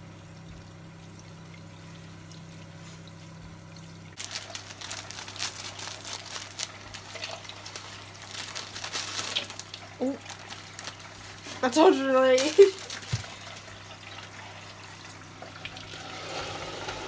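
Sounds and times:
plastic bag crinkling: 0:04.2 - 0:13.7.

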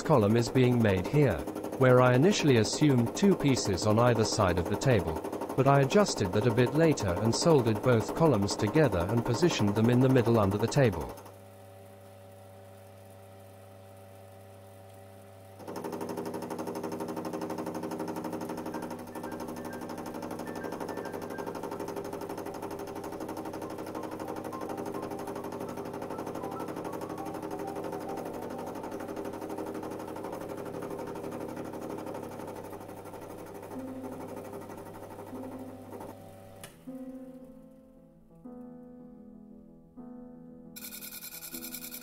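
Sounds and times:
metal lathe cutting: 0:00.0 - 0:11.3, 0:40.8 - 0:42.0.

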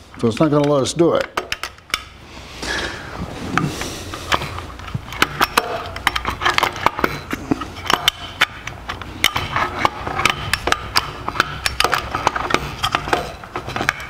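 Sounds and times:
metal parts clicking and clinking: 0:00.1 - 0:02.2, 0:04.1 - 0:14.0.

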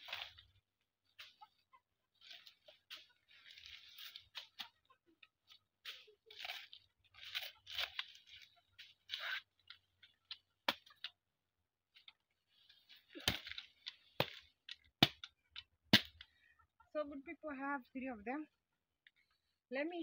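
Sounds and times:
machete chopping plant stems: 0:05.5 - 0:11.2, 0:13.1 - 0:16.2.

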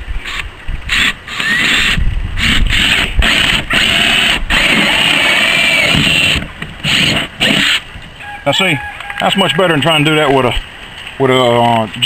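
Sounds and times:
drill cutting through plastic: 0:00.3 - 0:07.8.

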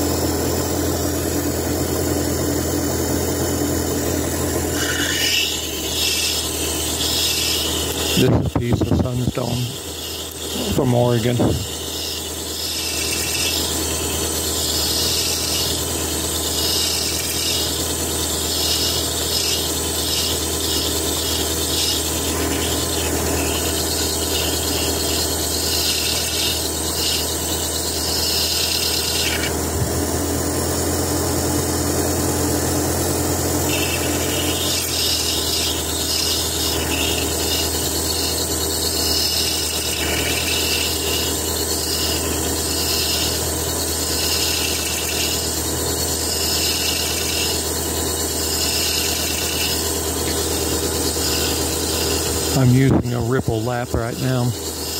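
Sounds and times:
motor hum: 0:00.0 - 0:54.9
stone grinding on a lap: 0:03.1 - 0:30.0, 0:32.9 - 0:54.9.

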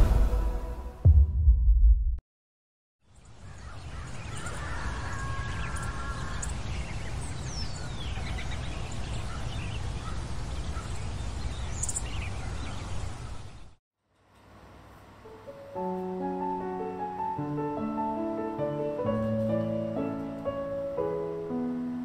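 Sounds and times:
birds calling: 0:03.2 - 0:13.8.

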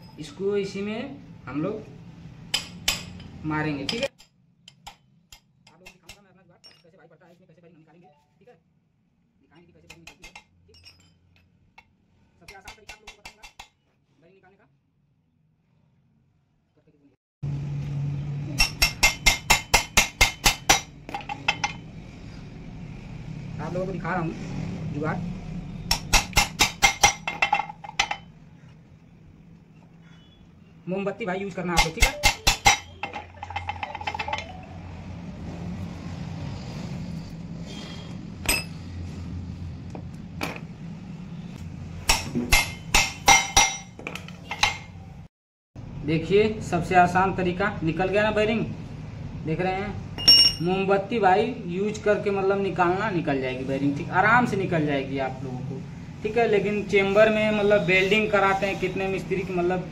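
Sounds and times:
hammer striking metal rod: 0:02.5 - 0:06.8, 0:12.5 - 0:13.8, 0:18.5 - 0:21.8, 0:25.9 - 0:28.3, 0:31.8 - 0:34.6, 0:38.4 - 0:38.8, 0:42.1 - 0:45.0, 0:50.2 - 0:50.7.

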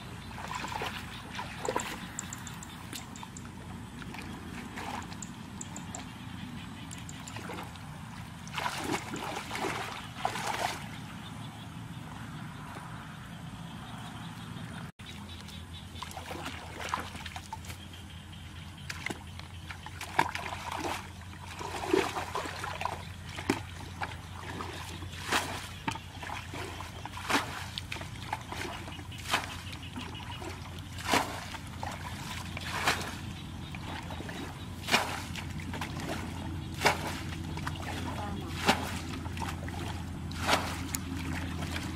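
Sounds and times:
water sloshing and trickling: 0:00.0 - 0:41.9
water splashing from bucket: 0:00.3 - 0:03.2, 0:08.4 - 0:11.0, 0:16.0 - 0:17.6, 0:18.9 - 0:41.9.

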